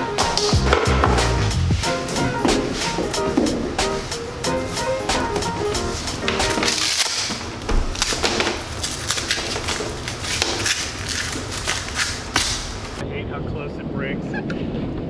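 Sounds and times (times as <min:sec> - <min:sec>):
velcro ripping open: 0:06.6 - 0:12.8.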